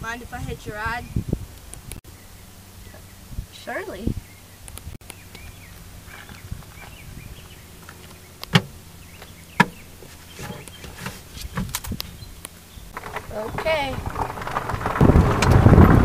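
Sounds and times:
golf cart humming: 0.0 - 16.0
sharp knocks: 8.5 - 8.8, 9.6 - 9.8.

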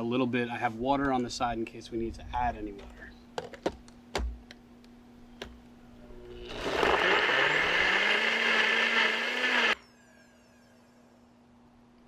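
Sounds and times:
blender motor running: 6.1 - 9.8.

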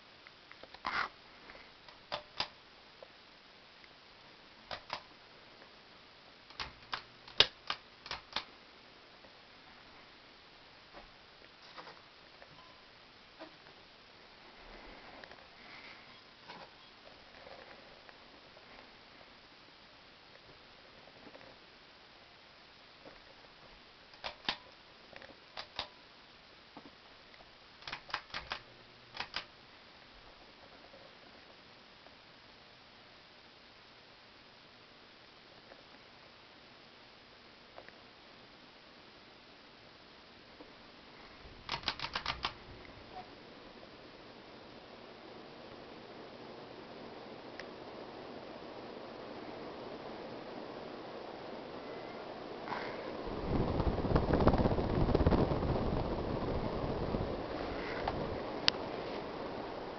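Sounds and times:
faint steady hiss: 0.0 - 59.9
sharp clicks: 1.9 - 2.6, 4.7 - 5.1, 6.5 - 8.5, 24.1 - 24.8, 25.6 - 25.9, 27.8 - 29.5, 41.7 - 42.6
ceiling fan running: 40.9 - 59.9.

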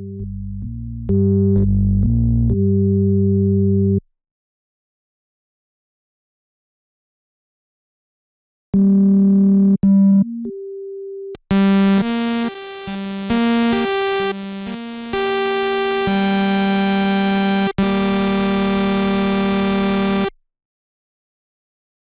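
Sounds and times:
plain synthesizer tone: 8.8 - 20.3
synthesizer saw-wave notes: 11.5 - 20.3.

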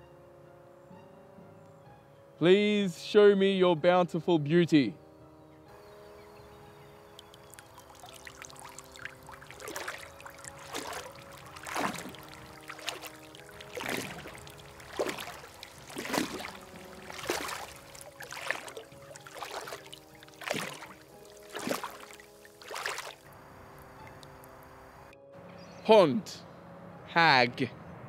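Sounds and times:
water sloshing and splashing: 7.0 - 24.6.

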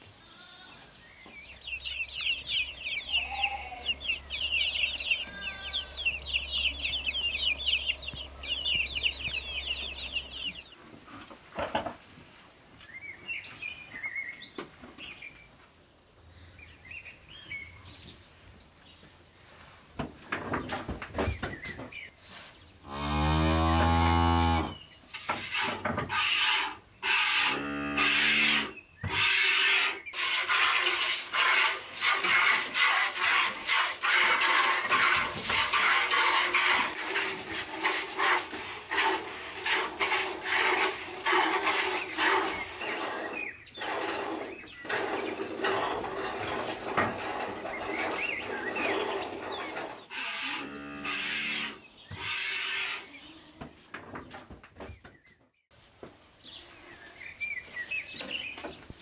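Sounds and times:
cow mooing: 5.1 - 6.2, 22.8 - 24.8, 27.3 - 28.8, 50.2 - 53.0.

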